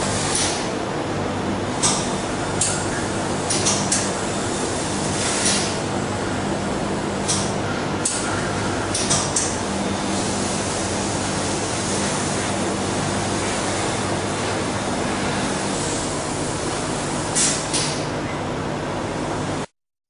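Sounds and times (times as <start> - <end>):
laser cutter rushing hiss: 1.8 - 18.2.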